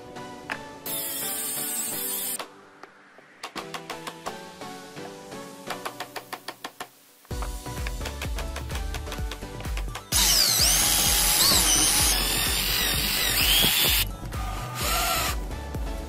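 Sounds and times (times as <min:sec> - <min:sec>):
electric drill boring into metal: 0:00.9 - 0:02.4, 0:10.1 - 0:15.4
background music with beat: 0:02.4 - 0:16.0
drill bit squealing: 0:10.2 - 0:15.4.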